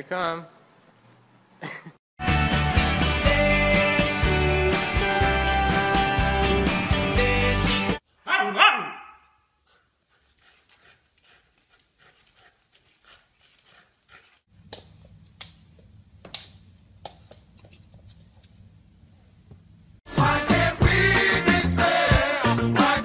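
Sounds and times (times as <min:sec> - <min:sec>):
puppy panting and snuffling: 0:09.6 - 0:14.5.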